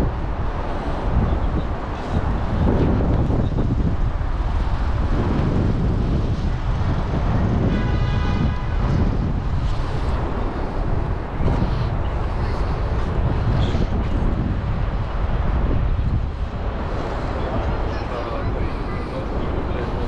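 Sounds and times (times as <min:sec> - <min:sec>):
street traffic: 0:00.0 - 0:20.0
wind rumbling on microphone: 0:00.0 - 0:20.0.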